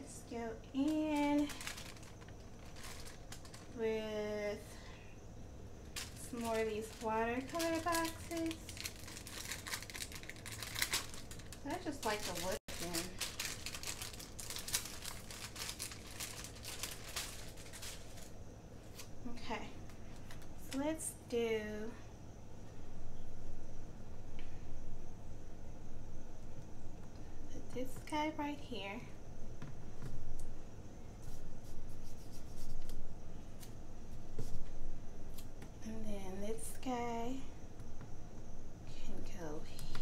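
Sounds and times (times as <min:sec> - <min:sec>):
paper sheets crinkling: 0:00.8 - 0:03.8, 0:06.0 - 0:19.1.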